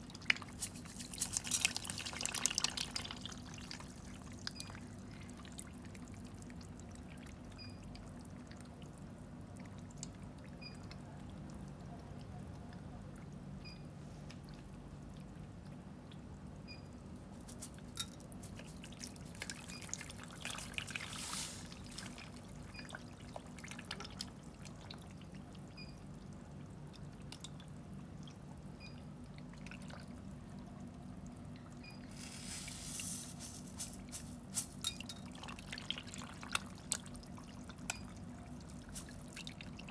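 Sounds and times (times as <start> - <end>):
water trickling: 0.0 - 11.8, 17.9 - 39.9
fish splashing at water surface: 0.2 - 3.9, 18.5 - 24.4, 32.1 - 37.7.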